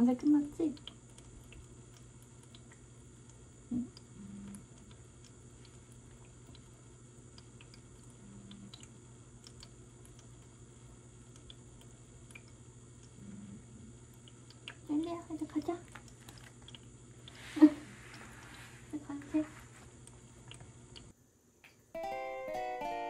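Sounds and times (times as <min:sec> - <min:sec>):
low electrical hum: 0:00.0 - 0:23.0
faint small clicks: 0:07.4 - 0:10.5, 0:11.3 - 0:13.2.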